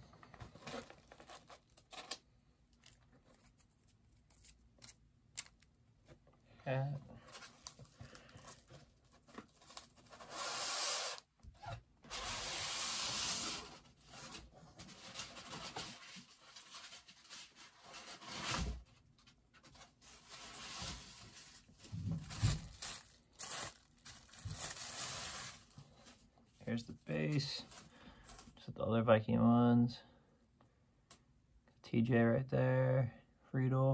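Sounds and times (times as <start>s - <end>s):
packaging rustling: 0.0s - 5.7s, 7.2s - 11.2s, 20.1s - 26.3s
packaging tearing: 0.5s - 5.7s, 22.3s - 25.7s.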